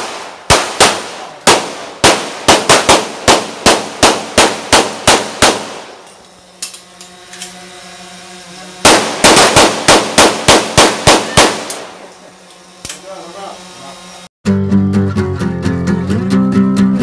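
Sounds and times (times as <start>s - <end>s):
gunshots at close range: 0.0s - 6.1s, 8.8s - 12.1s.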